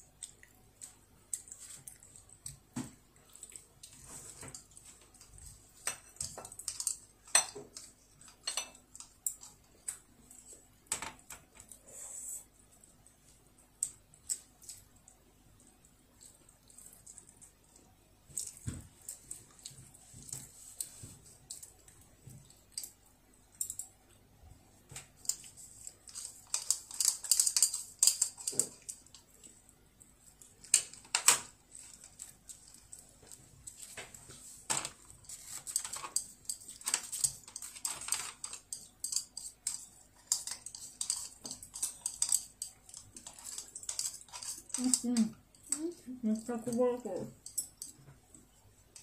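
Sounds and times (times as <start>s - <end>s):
utensils clicking against bowl: 35.6s - 48.0s.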